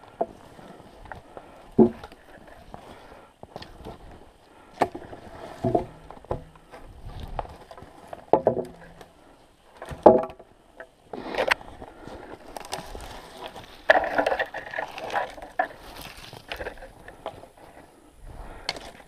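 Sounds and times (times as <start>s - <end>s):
twigs rustling underfoot: 0.0s - 19.0s
footsteps crunching through snow: 11.2s - 13.9s, 15.8s - 16.5s.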